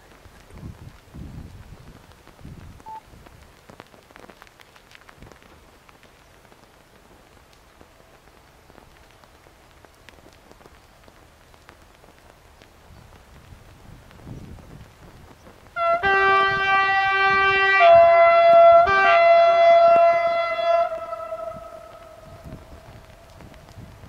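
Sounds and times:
wind buffeting microphone: 0.0s - 4.3s, 12.1s - 24.0s
faint clicks and ticks: 0.0s - 15.8s.

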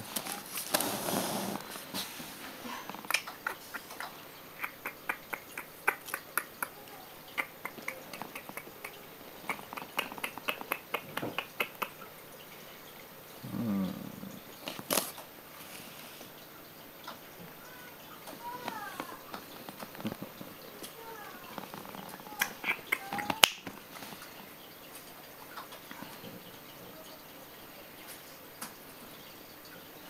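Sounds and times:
puppies mouthing clicks and smacks: 2.9s - 12.0s, 18.3s - 24.2s
puppy low grumble: 13.4s - 14.5s.

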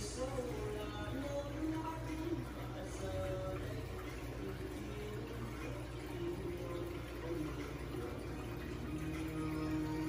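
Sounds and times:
water trickling: 0.0s - 10.0s.

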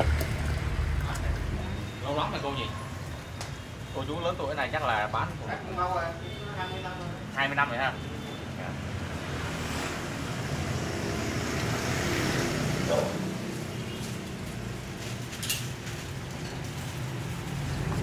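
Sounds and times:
road traffic noise: 0.0s - 18.0s
vehicle passing: 8.6s - 15.3s.

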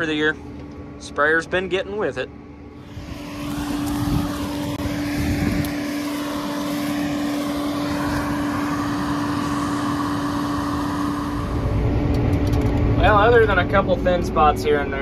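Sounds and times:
crop sprayer engine idling: 2.8s - 13.7s.

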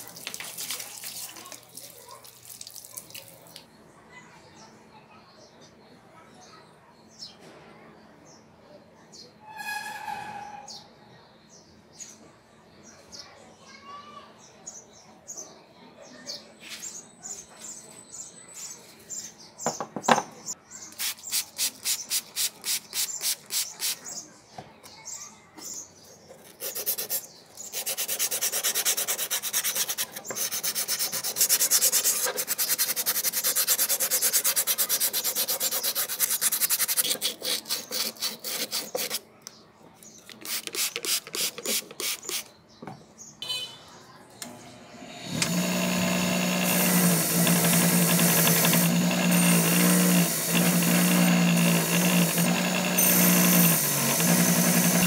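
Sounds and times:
knock: 19.7s - 20.4s
hands rubbing rusty iron: 26.3s - 39.3s, 40.3s - 42.4s.

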